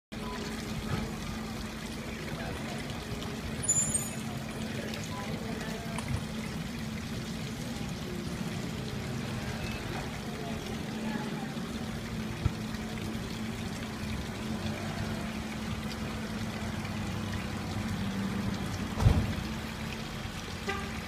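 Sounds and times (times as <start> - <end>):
fountain water splashing: 0.1 - 21.0
high-pitched ring: 3.6 - 4.2.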